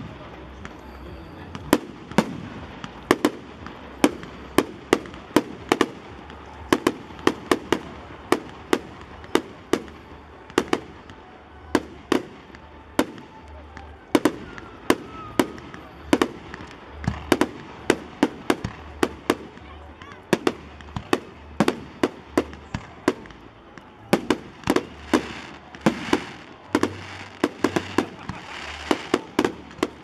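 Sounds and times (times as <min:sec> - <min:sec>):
fireworks bursting: 0:00.0 - 0:30.0
firework hiss: 0:24.2 - 0:30.0.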